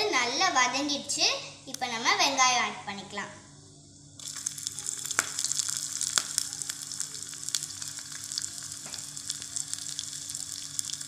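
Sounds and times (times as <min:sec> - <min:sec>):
onions sizzling in hot oil: 0:04.2 - 0:11.0.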